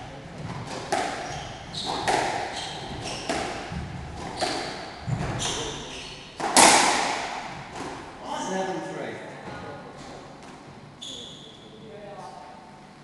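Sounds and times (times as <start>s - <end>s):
racquet striking squash ball: 0.0s - 8.2s
sneakers squeaking on wooden floor: 0.4s - 6.6s, 11.0s - 11.8s
ball hitting court walls: 0.4s - 8.1s.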